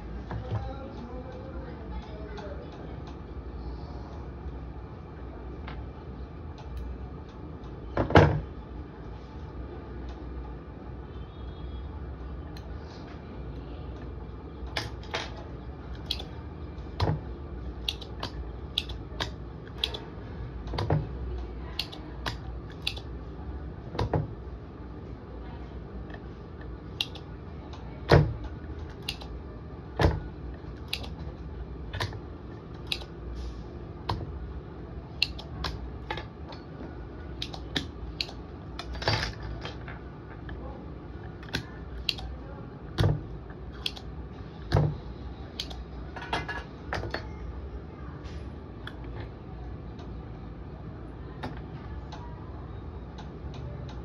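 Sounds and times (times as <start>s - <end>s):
steady low hum: 0.0s - 54.0s
tools tapping circuit board: 14.7s - 16.4s, 17.8s - 20.1s, 21.7s - 23.2s, 27.0s - 29.4s, 30.0s - 31.3s, 32.8s - 33.2s, 35.2s - 36.6s, 37.4s - 40.6s, 43.0s - 44.1s, 44.7s - 47.3s
solder sucker snapping: 17.8s - 20.0s, 21.8s - 23.1s, 27.0s - 27.2s, 29.0s - 29.3s, 30.8s - 31.2s, 32.8s - 33.1s, 35.2s - 35.8s, 37.4s - 38.9s, 41.4s - 42.3s, 43.8s - 44.1s.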